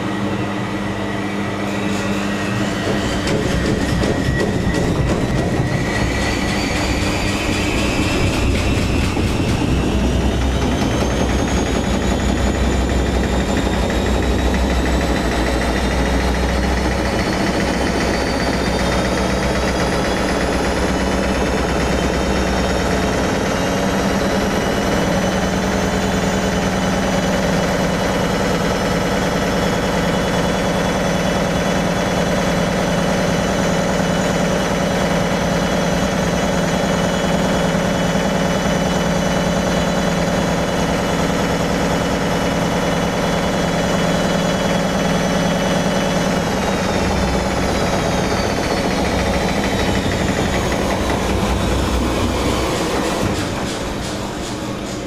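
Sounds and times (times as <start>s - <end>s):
washing machine motor whine: 0.0s - 55.0s
deep rumble: 3.2s - 24.7s.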